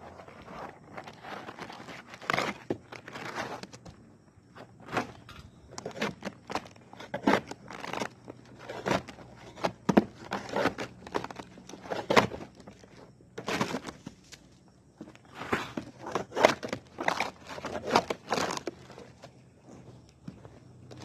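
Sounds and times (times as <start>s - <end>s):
tool knocking and scraping shingles: 4.8s - 14.2s, 15.0s - 19.3s.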